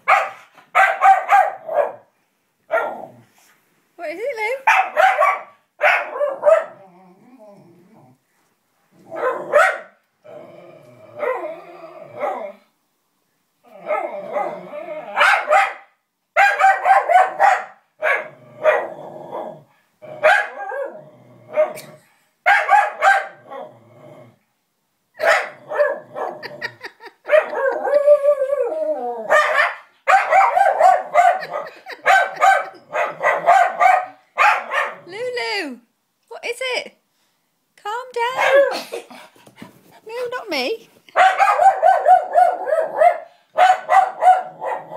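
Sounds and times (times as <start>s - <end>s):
dog barking: 0.0s - 2.1s, 2.7s - 3.1s, 4.6s - 6.8s, 9.1s - 10.0s, 15.2s - 19.4s, 20.2s - 21.9s, 22.5s - 23.4s, 25.2s - 26.4s, 27.2s - 28.0s, 29.3s - 35.1s, 38.4s - 38.8s, 41.2s - 44.9s
dog crying: 25.3s - 35.6s, 38.3s - 39.0s.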